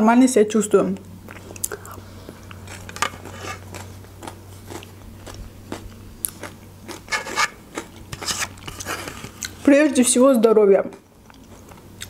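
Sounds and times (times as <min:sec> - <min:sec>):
wet chewing with crunchy clicks: 0:01.0 - 0:07.1, 0:07.7 - 0:09.6, 0:10.9 - 0:12.0.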